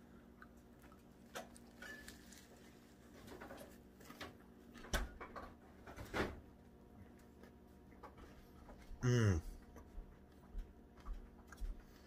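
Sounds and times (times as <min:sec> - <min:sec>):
faint chewing: 0:00.0 - 0:04.2, 0:07.1 - 0:12.0.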